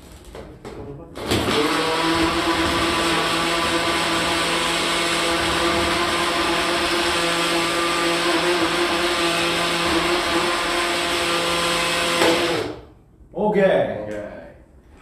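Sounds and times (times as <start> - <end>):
blender motor whine: 1.2 - 12.8.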